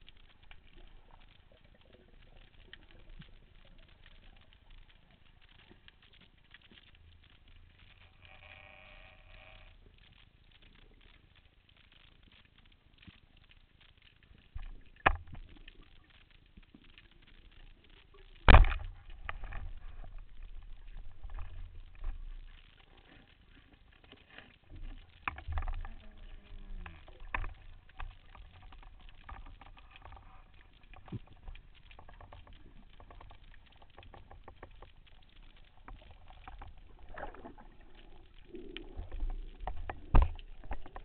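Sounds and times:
low rumbling water turbulence: 0.0s - 41.0s
sharp underwater clicks and knocks: 0.0s - 41.0s
underwater speargun crack: 18.4s - 19.7s.

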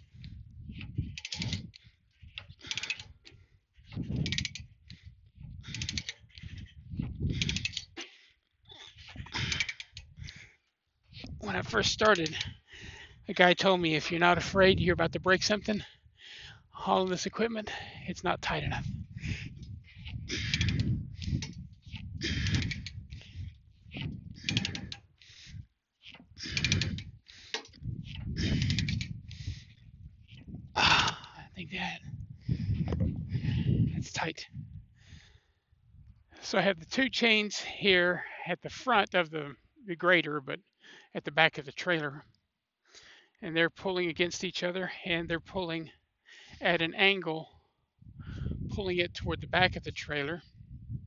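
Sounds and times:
wind on microphone: 0.0s - 8.0s, 11.1s - 13.3s, 14.3s - 16.6s, 17.7s - 36.3s, 48.0s - 51.0s
metal pawl clicks: 0.2s - 5.0s, 5.7s - 6.7s, 7.4s - 8.2s, 9.0s - 10.4s, 12.0s - 12.6s, 20.0s - 23.1s, 23.9s - 29.3s
ratchet chain binder cranking: 0.9s - 3.4s, 4.0s - 5.0s, 5.6s - 8.2s, 8.9s - 10.4s, 11.6s - 12.6s, 19.6s - 29.3s
ratchet clicks: 1.2s - 1.8s, 2.4s - 3.4s, 4.2s - 4.7s, 5.7s - 6.5s, 7.4s - 7.9s, 20.4s - 21.6s, 22.3s - 23.0s, 24.4s - 25.0s, 26.4s - 27.8s, 28.5s - 29.1s.

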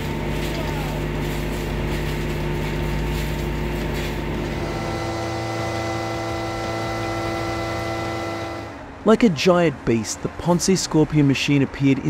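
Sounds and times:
saw cutting tree limbs: 0.0s - 8.8s
crane truck engine and hydraulics: 0.0s - 9.0s.

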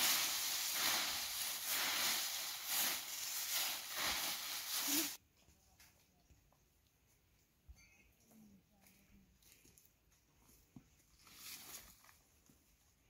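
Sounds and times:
steady hiss with crackles: 0.0s - 5.2s.

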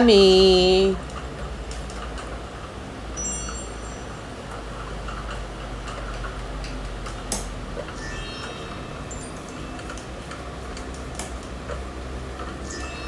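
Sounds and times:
high metallic rings: 3.1s - 4.6s, 7.9s - 10.8s, 12.5s - 13.0s.

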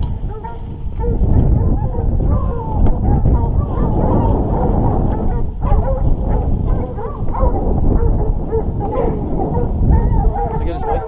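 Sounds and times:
dogs baying: 0.0s - 11.0s.

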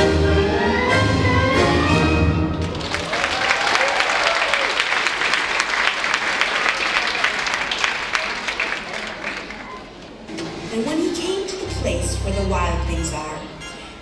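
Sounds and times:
orchestral music: 0.0s - 2.9s, 11.6s - 14.0s
audience applause: 2.5s - 10.0s.

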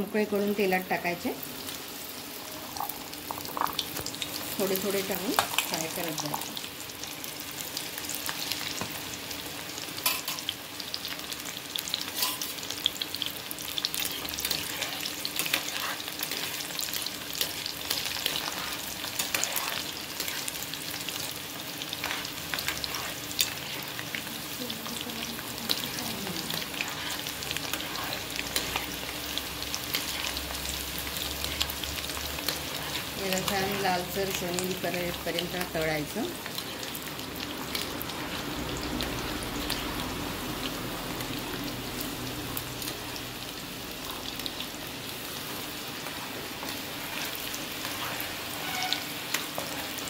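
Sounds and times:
chickpeas deep-frying in oil: 0.0s - 50.0s
slotted spoon stirring oil: 12.1s - 12.5s, 13.9s - 24.2s, 25.7s - 29.1s, 31.1s - 33.8s.

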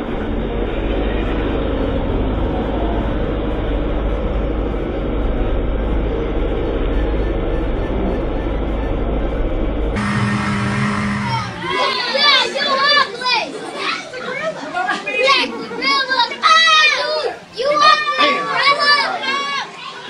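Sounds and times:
motorboat at speed: 0.0s - 11.7s.

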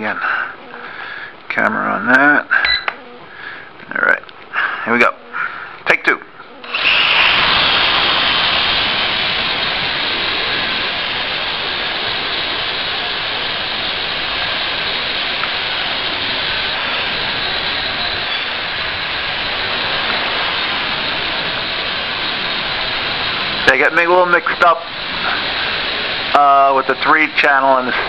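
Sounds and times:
quadcopter propellers whirring: 6.5s - 28.0s.

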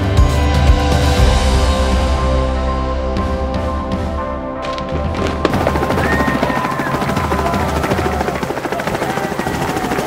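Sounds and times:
helicopter rotor chopping: 5.1s - 10.0s.

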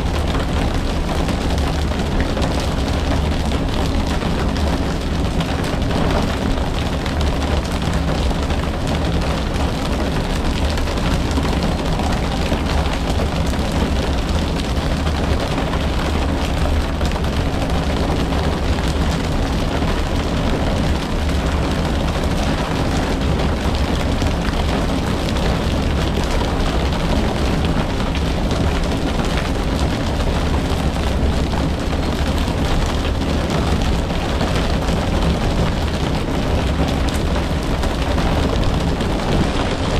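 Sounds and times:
wind and water rushing: 19.9s - 39.9s.

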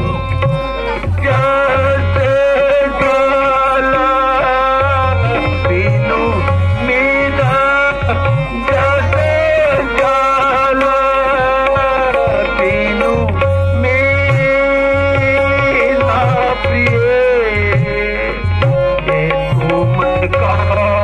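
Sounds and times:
held drone note: 0.0s - 20.9s
low tabla strokes: 0.0s - 21.0s.

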